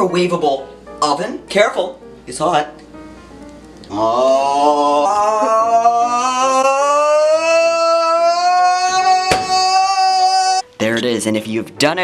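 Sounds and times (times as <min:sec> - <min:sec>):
person singing a long note: 0:03.9 - 0:10.6.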